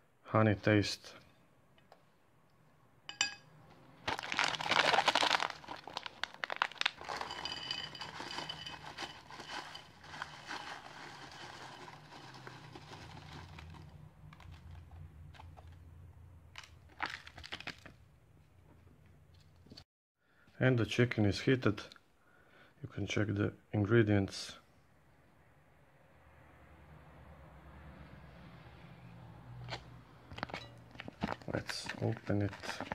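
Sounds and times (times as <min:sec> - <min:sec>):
packet ripping open: 0:04.0 - 0:07.4, 0:16.6 - 0:18.0, 0:31.0 - 0:32.9
foil snack packet crinkling: 0:04.0 - 0:15.5, 0:16.6 - 0:18.0, 0:31.0 - 0:32.9
peanuts rattling onto a plate: 0:04.2 - 0:13.7.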